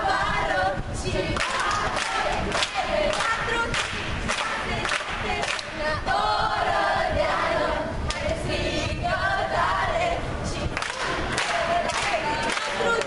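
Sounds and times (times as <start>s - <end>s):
hand claps: 1.4s - 5.7s, 10.8s - 13.0s.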